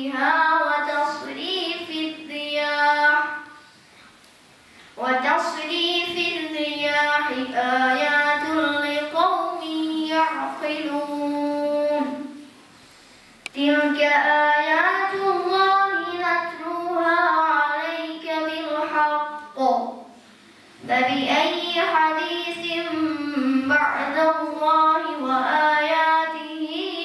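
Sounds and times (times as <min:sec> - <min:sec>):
boy chanting into microphone: 0:05.0 - 0:12.4, 0:13.6 - 0:20.1, 0:20.8 - 0:27.0.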